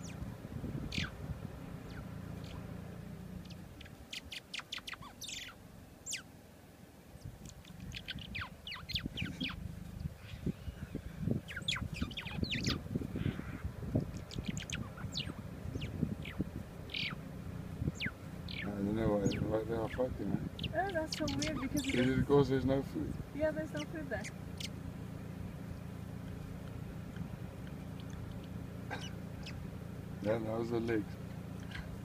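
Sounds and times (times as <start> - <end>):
small birds chirping: 0.0 - 6.4, 7.0 - 32.0
low uneven rumble: 0.0 - 32.0.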